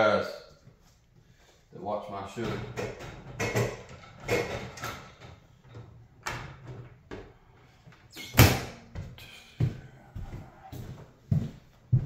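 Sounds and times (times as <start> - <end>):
door banging shut: 8.2 - 8.8.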